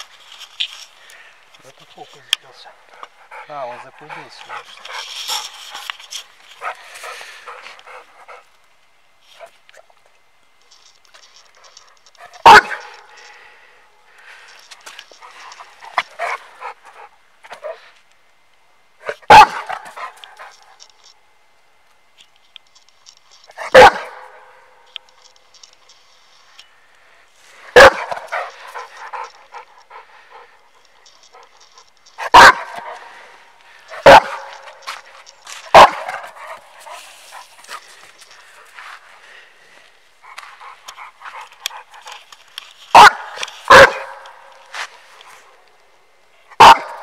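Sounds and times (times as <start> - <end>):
scuffling noise: 3.3 - 8.4, 30.9 - 45.6
dog barking: 12.4 - 13.0, 19.2 - 20.1, 23.6 - 24.5, 27.8 - 28.5, 32.2 - 33.0, 34.0 - 34.8, 35.7 - 36.4, 42.9 - 44.3, 46.6 - 47.0.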